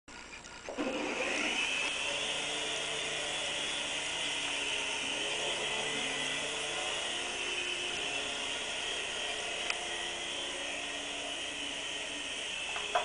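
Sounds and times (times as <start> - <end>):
toy helicopter motor whirring: 0.1 - 13.0.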